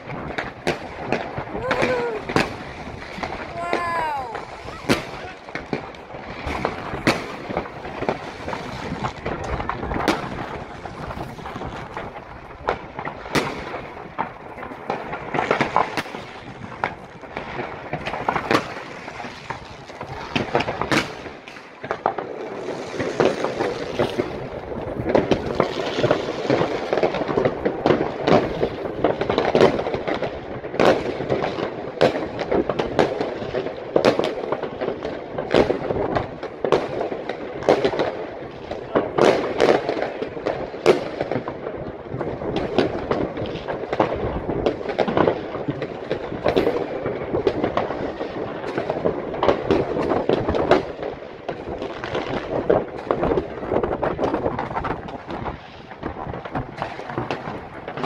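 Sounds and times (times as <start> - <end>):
fireworks hissing: 0.0 - 27.1
firecracker bangs: 0.0 - 58.0
fireworks crackling and popping: 0.0 - 58.0.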